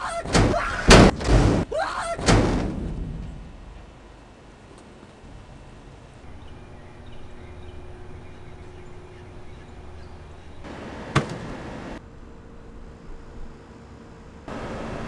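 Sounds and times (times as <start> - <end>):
sharp crack: 0.3 - 3.3.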